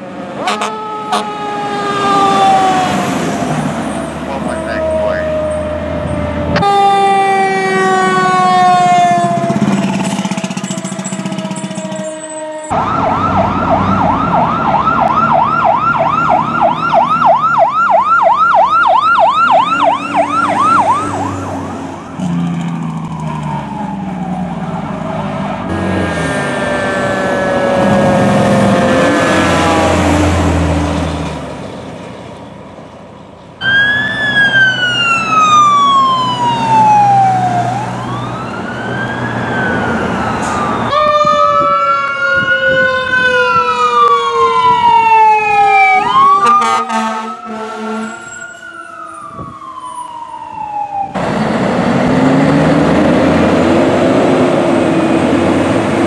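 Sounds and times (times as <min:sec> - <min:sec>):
horn blasts: 0:00.4 - 0:01.5, 0:46.4 - 0:48.3
electronic siren yelp: 0:00.4 - 0:03.0, 0:03.9 - 0:22.3, 0:33.6 - 0:51.2
electronic siren wail: 0:00.4 - 0:30.4, 0:33.6 - 0:51.4
falling siren tones: 0:00.4 - 0:31.2, 0:33.6 - 0:56.0.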